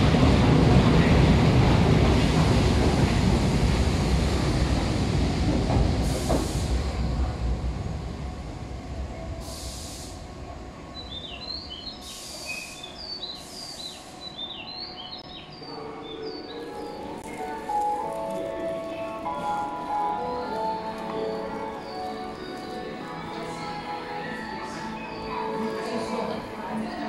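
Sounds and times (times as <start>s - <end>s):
electric train rumbling: 0.0s - 27.0s.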